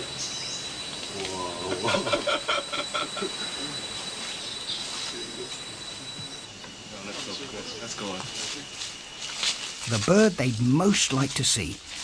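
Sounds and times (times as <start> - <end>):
high bird chirps: 0.0 - 1.1, 3.3 - 6.7
rapid pulsed calls: 0.0 - 11.0
high-pitched insect whine: 0.0 - 12.0.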